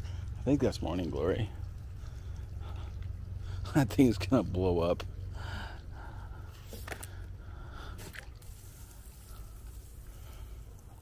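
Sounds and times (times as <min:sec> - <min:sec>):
small drips and clicks: 0:00.0 - 0:11.0
hose trickling into container: 0:07.9 - 0:11.0.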